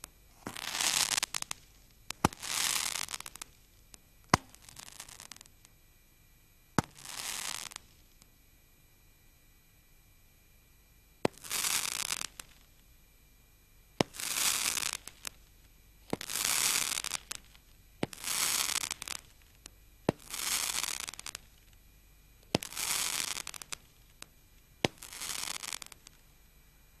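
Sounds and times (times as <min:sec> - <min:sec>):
dense firework crackling: 0:00.3 - 0:05.5, 0:06.8 - 0:08.2, 0:11.2 - 0:12.7, 0:14.0 - 0:21.8, 0:22.4 - 0:26.2.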